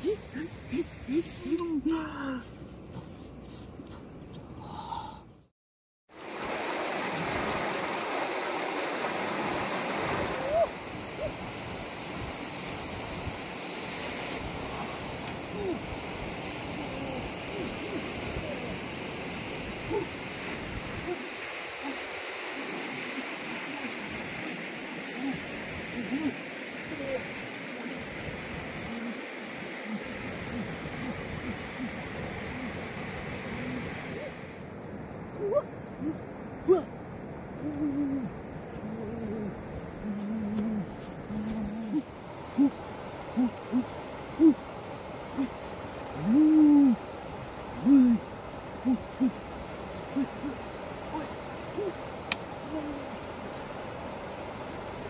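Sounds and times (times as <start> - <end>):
running water rushing: 6.1 - 55.0.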